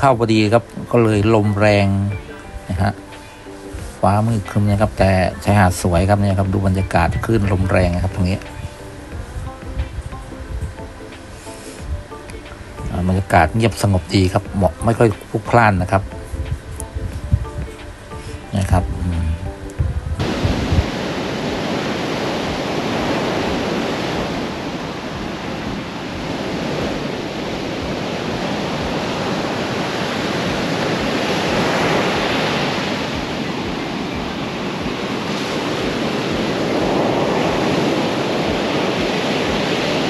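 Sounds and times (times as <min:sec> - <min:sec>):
surf breaking on beach: 0:00.0 - 0:40.0
wind rumbling on microphone: 0:00.0 - 0:40.0.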